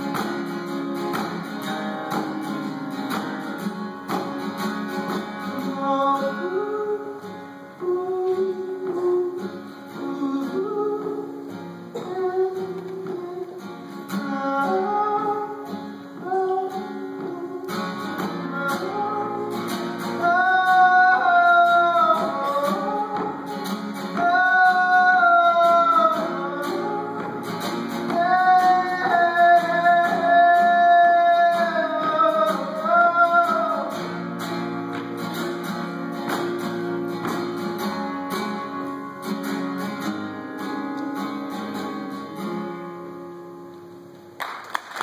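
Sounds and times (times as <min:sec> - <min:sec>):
strummed acoustic guitar: 0:00.0 - 0:44.4
man singing: 0:05.2 - 0:34.4.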